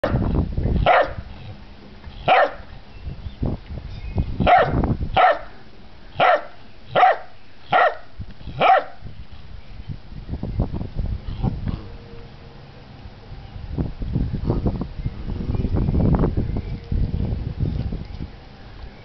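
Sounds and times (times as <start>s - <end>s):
puppy barking: 0.8s - 1.2s, 2.3s - 2.6s, 4.5s - 5.5s, 6.2s - 8.0s, 8.6s - 9.0s.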